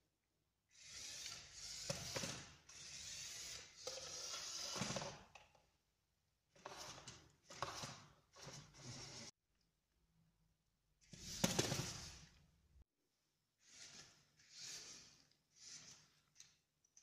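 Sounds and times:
toy car motors whirring: 0.7s - 5.0s, 13.6s - 16.5s
plastic wheels on hardwood floor: 0.7s - 5.6s, 6.5s - 9.3s, 11.0s - 12.5s, 13.6s - 16.7s.

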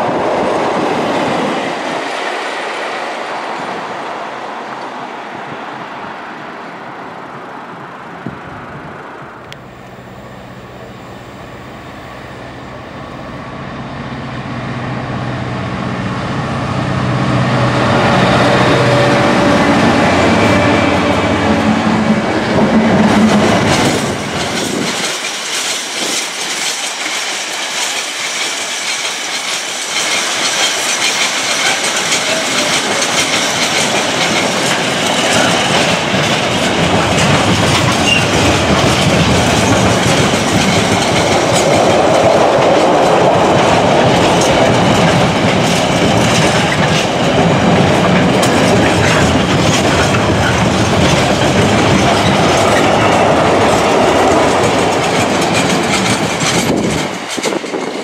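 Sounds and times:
train wheels clattering: 17.7s - 58.0s.

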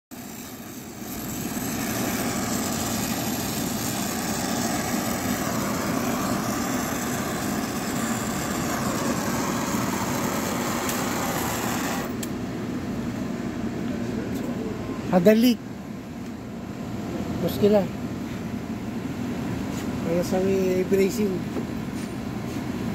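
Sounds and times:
torch flame hissing: 0.1s - 12.4s.

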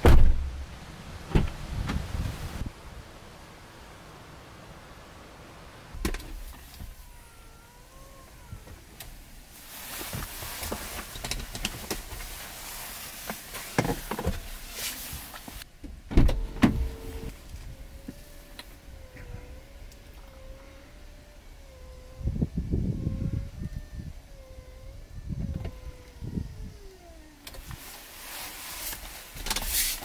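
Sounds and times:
loud thumps: 0.0s - 0.7s
seat motor whirring: 16.2s - 30.0s.

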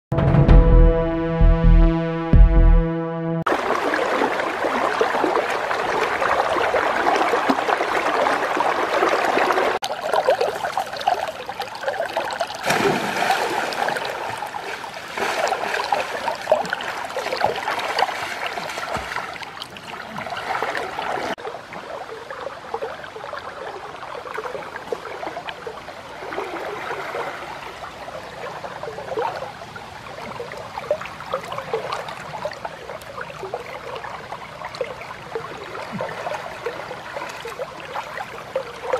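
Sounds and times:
splashing of person wading: 3.5s - 23.4s
river water flowing and lapping: 3.5s - 38.9s.

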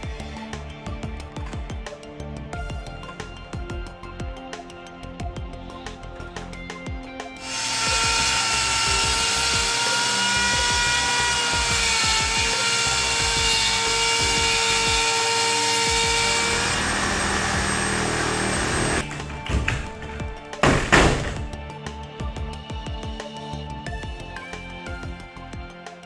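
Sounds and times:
background music: 0.0s - 26.0s
electric cutter whining: 7.4s - 21.5s.

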